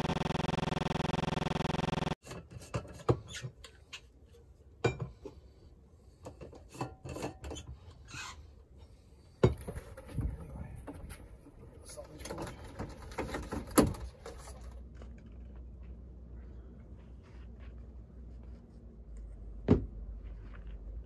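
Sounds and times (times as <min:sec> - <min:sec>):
steady buzzing drone: 0:00.0 - 0:02.2.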